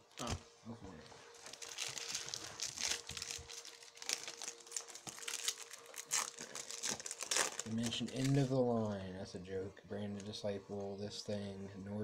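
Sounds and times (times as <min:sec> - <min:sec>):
foil wrappers crinkling: 0:01.2 - 0:08.6.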